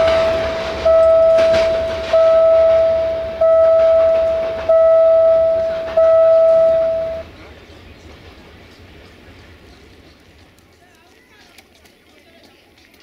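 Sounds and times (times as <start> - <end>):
level crossing bell dinging: 0.0 - 7.2.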